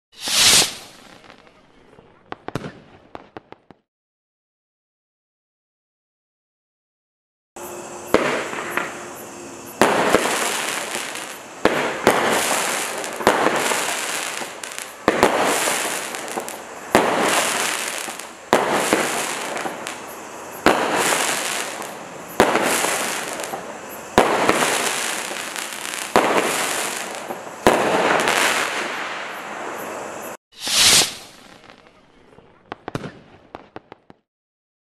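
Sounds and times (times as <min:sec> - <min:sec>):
crackling firework bursts: 0:00.1 - 0:03.8, 0:07.6 - 0:34.2
firework shots sharp reports: 0:00.2 - 0:03.8, 0:08.0 - 0:34.2.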